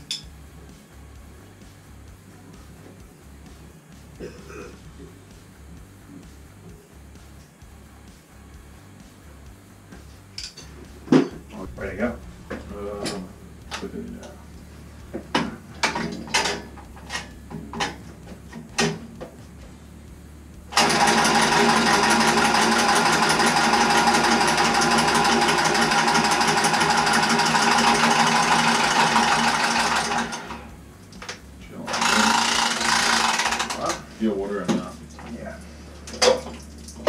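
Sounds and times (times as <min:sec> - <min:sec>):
electric power tool motor: 0:20.7 - 0:30.7, 0:31.8 - 0:34.1.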